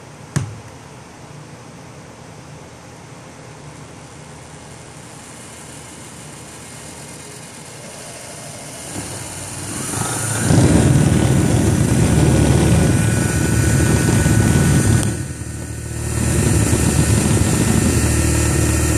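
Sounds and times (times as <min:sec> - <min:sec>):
electric motor humming: 0:04.7 - 0:18.9.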